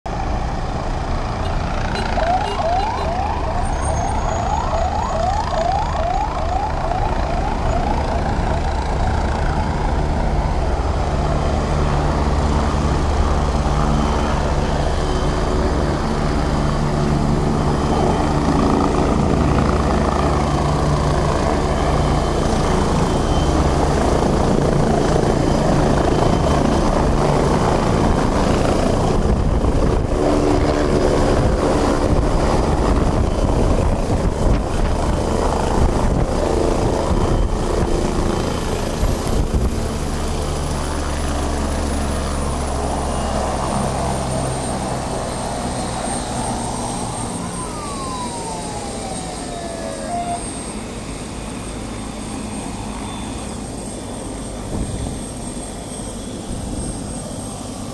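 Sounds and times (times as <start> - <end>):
city traffic rumble: 0.1 - 57.9
siren yelping: 1.7 - 9.9, 46.0 - 51.4.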